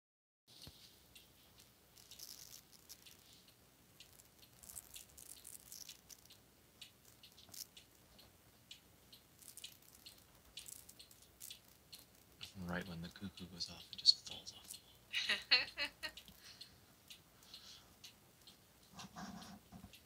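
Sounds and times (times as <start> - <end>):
mechanical clock ticking: 1.0 - 19.0.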